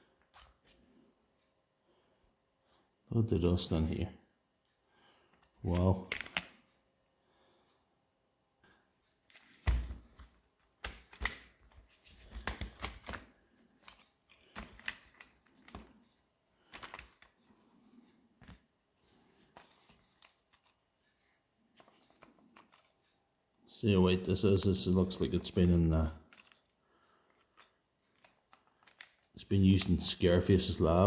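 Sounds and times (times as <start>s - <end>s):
plastic parts clicking and rattling: 5.3s - 6.7s, 10.2s - 17.5s, 19.5s - 20.9s, 21.7s - 23.1s, 26.2s - 29.9s.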